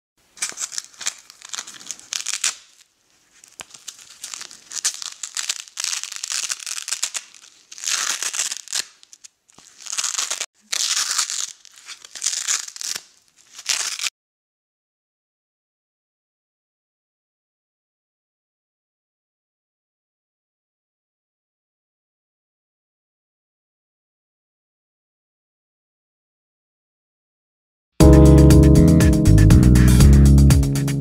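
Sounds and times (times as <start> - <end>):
hook-and-loop fastener ripping: 0.3 - 14.1.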